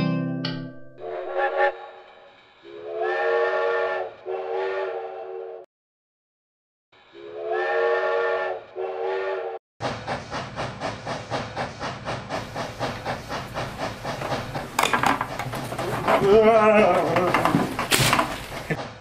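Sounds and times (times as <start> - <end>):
steam locomotive whistle: 1.0 - 5.7, 7.0 - 9.6
steam train chugging: 9.0 - 19.0.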